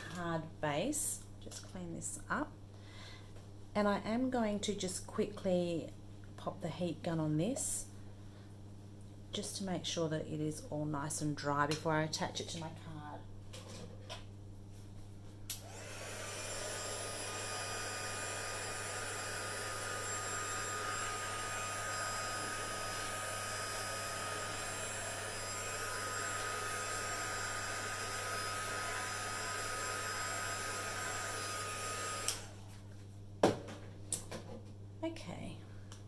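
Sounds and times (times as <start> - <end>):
heat gun blowing with motor whine: 15.5 - 32.6.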